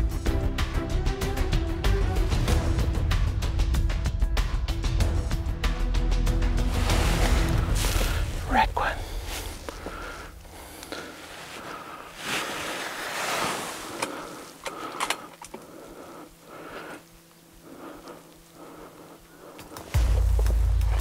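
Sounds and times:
rustling: 6.6 - 20.0.

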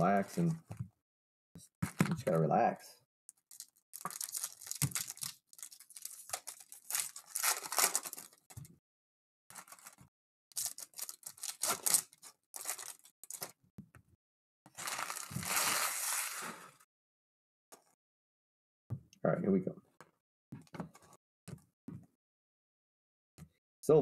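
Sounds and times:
foil wrappers tearing and crinkling: 3.5 - 8.6, 9.6 - 13.5, 14.8 - 16.7.

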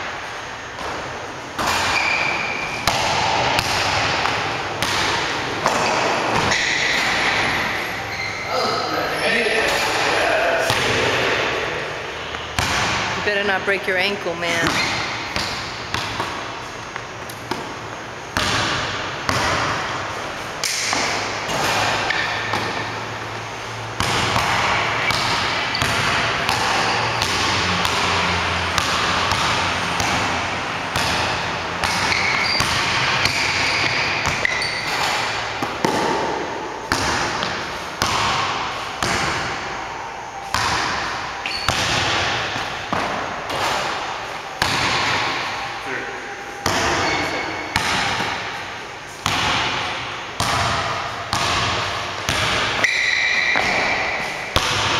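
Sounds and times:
basketball bouncing on hardwood floor: 1.6 - 7.4, 12.6 - 13.1, 14.6 - 16.4, 18.4 - 19.8, 24.0 - 39.5, 40.5 - 43.2, 46.6 - 48.4, 50.4 - 52.7.

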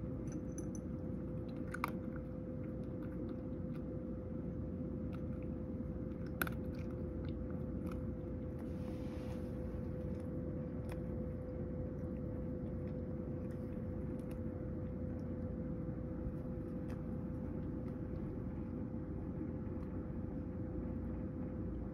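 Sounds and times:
faint steady tone: 0.0 - 1.4
cat crunching dry kibble: 0.0 - 20.5
steady low hum: 0.0 - 21.9.

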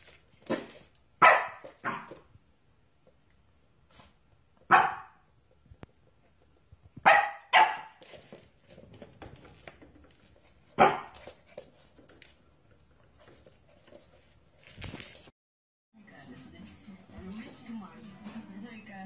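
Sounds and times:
puppy barking: 1.2 - 2.2, 4.7 - 5.2, 7.0 - 8.0, 10.8 - 11.2.

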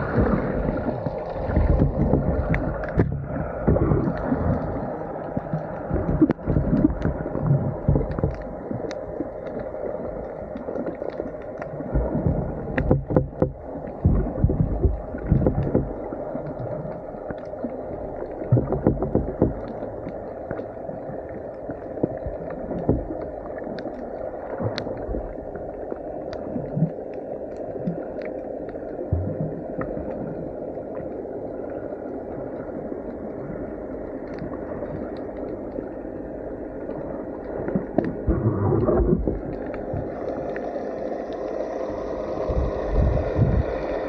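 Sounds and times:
steady hum: 0.0 - 44.0
water sloshing underwater: 0.0 - 44.0
faint clicks: 0.8 - 29.1, 34.0 - 36.0, 36.8 - 41.6.

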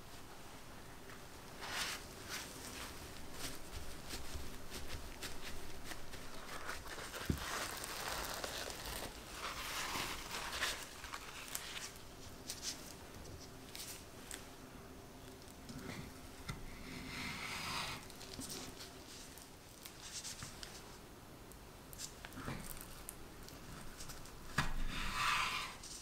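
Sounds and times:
paper towel rustling: 0.0 - 14.5.

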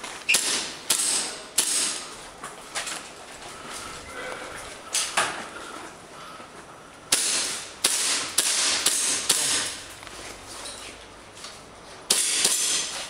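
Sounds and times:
airsoft gun shots: 0.3 - 2.0, 7.1 - 9.8, 12.1 - 12.9.

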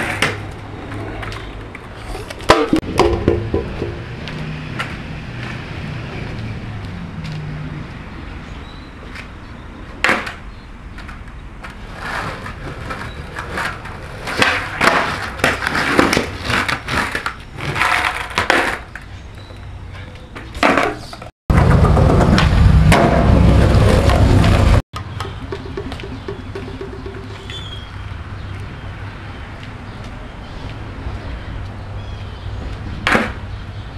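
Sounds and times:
skateboard clattering on concrete: 0.0 - 4.1, 10.0 - 10.4, 11.0 - 19.1, 20.3 - 27.9
skateboard wheels rolling: 0.0 - 7.6, 9.0 - 28.7.

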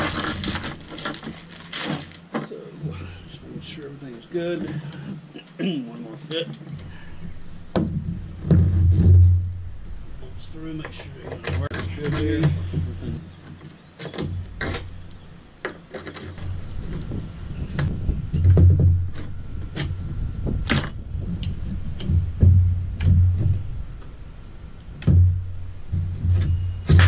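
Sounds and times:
low rumble: 6.9 - 13.3, 16.4 - 27.0.

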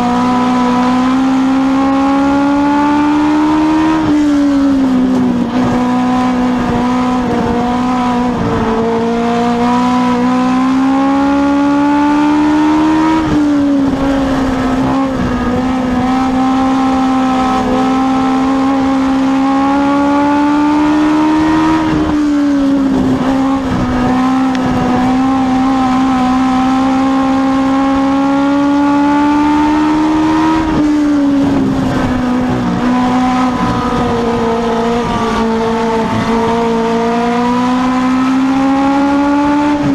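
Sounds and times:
race car engine at high revs: 0.0 - 39.9.

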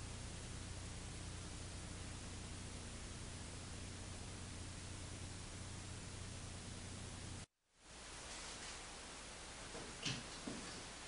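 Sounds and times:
low hum: 0.0 - 8.1
steady hiss: 0.0 - 11.0.

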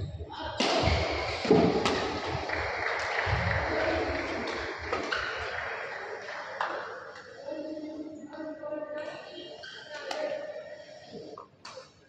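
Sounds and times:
crowd noise: 0.0 - 11.6
shoe squeaks: 9.4 - 10.2.

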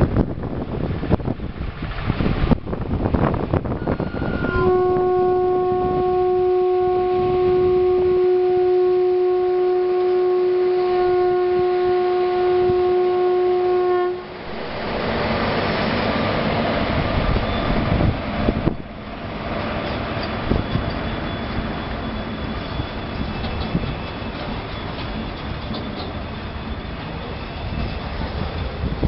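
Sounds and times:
train rushing and rattling: 0.0 - 29.0
train horn blast: 3.7 - 14.8.

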